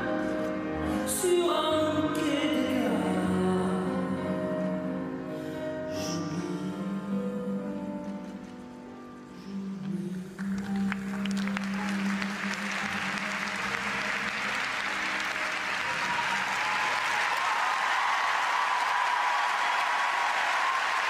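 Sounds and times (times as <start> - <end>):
audience applauding: 10.4 - 21.0.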